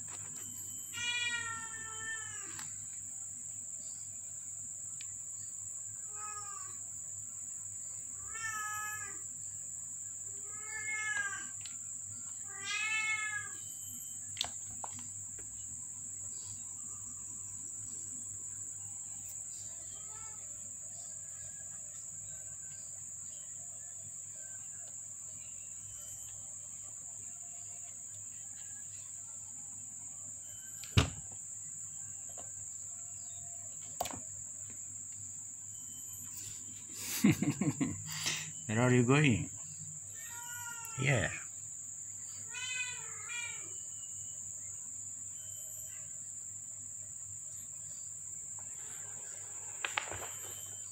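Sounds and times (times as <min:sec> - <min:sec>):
kittens meowing: 0:01.0 - 0:02.6, 0:06.1 - 0:06.8, 0:08.2 - 0:09.2, 0:10.4 - 0:11.6, 0:12.5 - 0:13.6, 0:40.1 - 0:41.4, 0:42.4 - 0:43.8.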